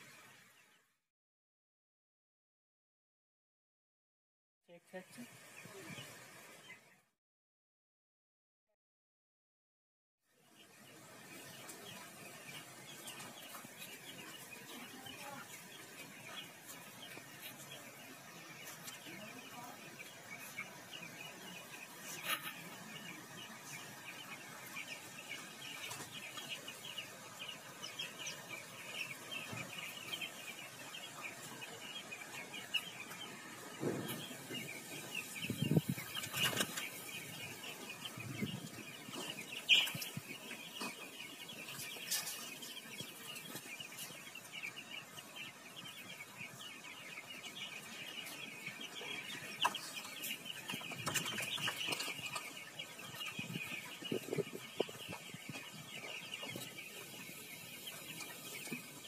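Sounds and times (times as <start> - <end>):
chicks peeping: 4.8 - 7.1, 10.4 - 59.0.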